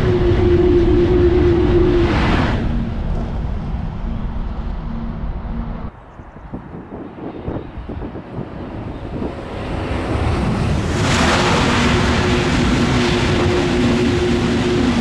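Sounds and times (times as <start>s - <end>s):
steady humming tones: 0.0s - 9.3s
high-speed train passing: 0.0s - 15.0s.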